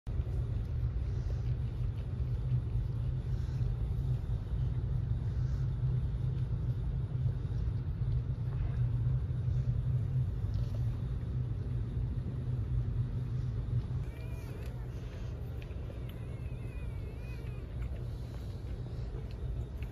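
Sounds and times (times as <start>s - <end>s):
low rumble: 0.1s - 19.9s.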